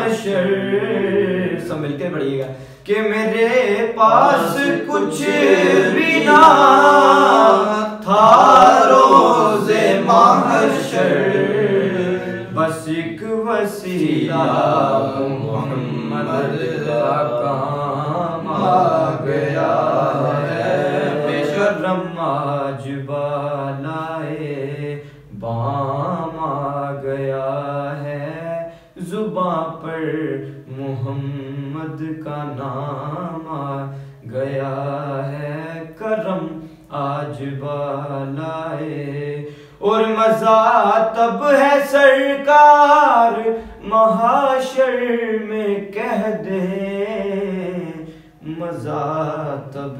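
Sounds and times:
man chanting devotional poem: 0.0s - 49.9s
man singing unaccompanied: 0.0s - 49.9s.

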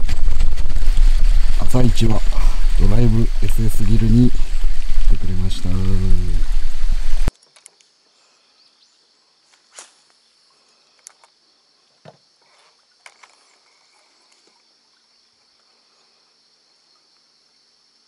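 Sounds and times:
faint low hum: 0.0s - 7.3s
insects chirring: 0.0s - 18.0s.

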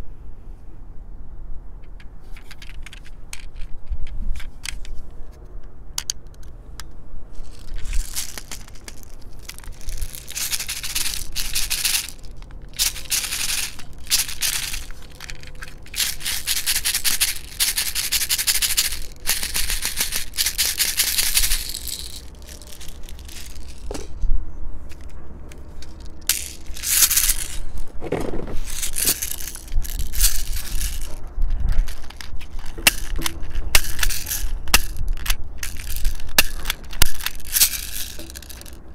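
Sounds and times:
toy gun plastic clicks: 1.8s - 5.0s, 6.0s - 6.9s, 7.5s - 24.1s, 25.8s - 27.6s, 28.6s - 38.8s
plastic pellets rattling and pouring: 7.4s - 24.0s, 25.8s - 27.9s, 28.6s - 38.8s.

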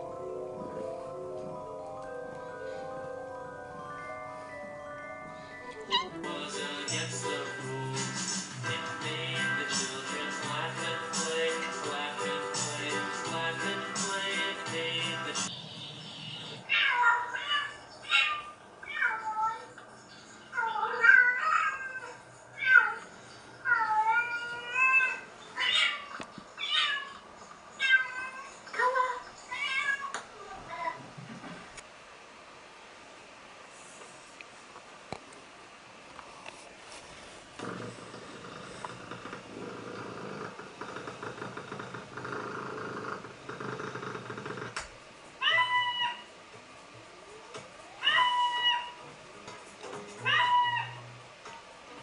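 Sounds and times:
cat meowing: 5.8s - 6.2s, 45.4s - 46.3s, 48.0s - 49.0s, 50.2s - 51.0s
cat purring: 37.6s - 44.8s.

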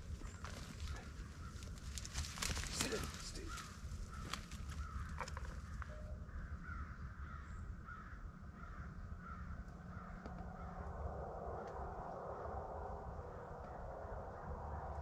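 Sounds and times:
low rumble: 0.0s - 15.0s.

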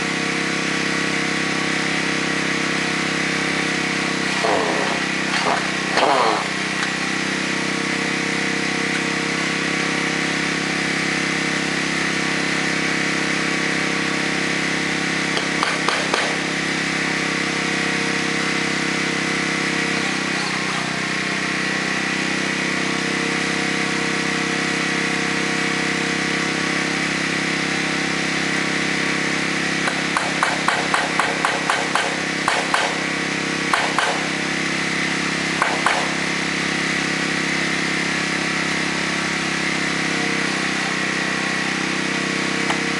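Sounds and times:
small engine droning: 0.0s - 42.9s
hammering on metal roofing: 15.4s - 16.4s, 29.9s - 33.0s, 33.7s - 34.2s.

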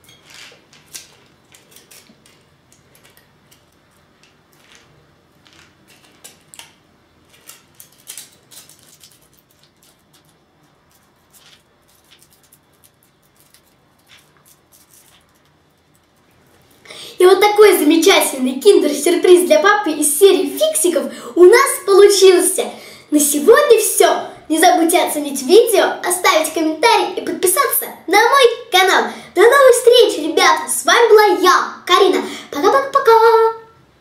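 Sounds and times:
foil wrapper crinkling: 0.2s - 16.4s.

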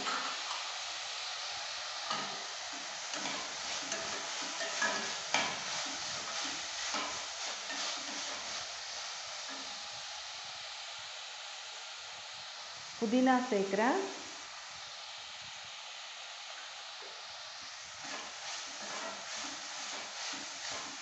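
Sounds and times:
onions sizzling in hot oil: 0.0s - 21.0s
spoon scraping and clinking on pan: 3.1s - 6.3s, 18.0s - 21.0s.

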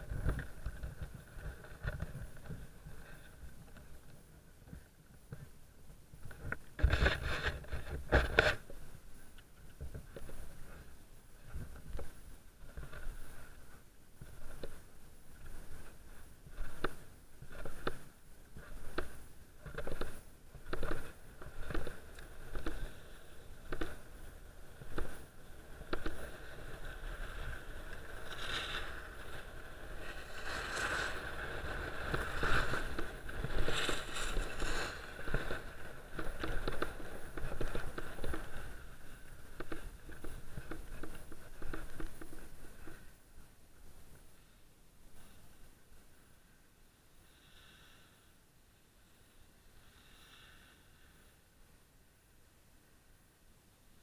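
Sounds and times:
skis scraping over snow: 6.8s - 44.6s.

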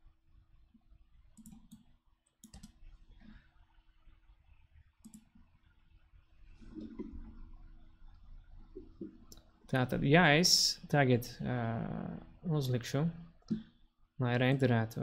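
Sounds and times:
low steady hum: 0.0s - 15.0s
computer mouse clicks: 1.4s - 2.9s, 5.0s - 5.5s.

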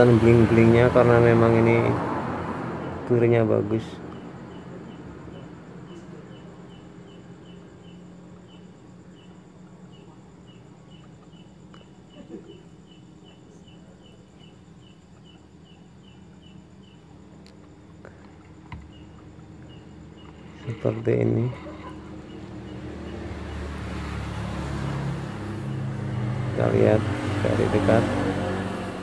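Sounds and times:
cricket chirping: 0.0s - 29.0s.

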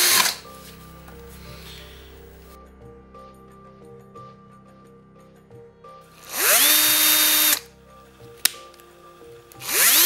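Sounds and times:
cordless drill motor whining: 0.0s - 0.4s, 6.2s - 7.6s, 9.6s - 10.0s.

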